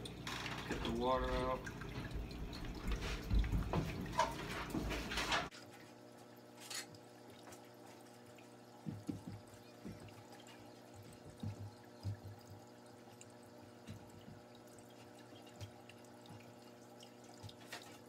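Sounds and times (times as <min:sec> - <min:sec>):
faint steady hum: 0:00.0 - 0:18.0
water dripping and splashing: 0:00.0 - 0:18.0.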